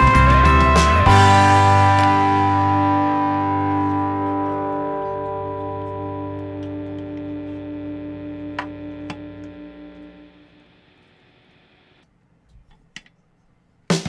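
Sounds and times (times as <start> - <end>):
guitar chord ringing: 0.0 - 10.9.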